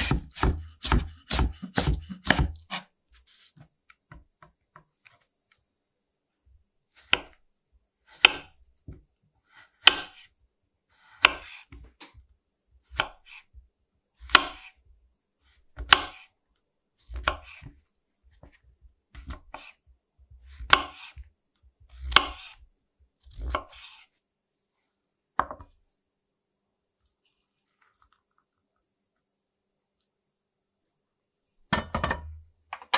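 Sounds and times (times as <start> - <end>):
knife slicing mushrooms on board: 0.0 - 3.6, 7.0 - 7.4, 8.1 - 10.3, 11.0 - 12.2, 12.9 - 13.5, 14.2 - 14.8, 15.7 - 16.3, 17.1 - 17.8, 19.2 - 19.8, 20.4 - 21.3, 21.9 - 22.6, 23.2 - 24.1.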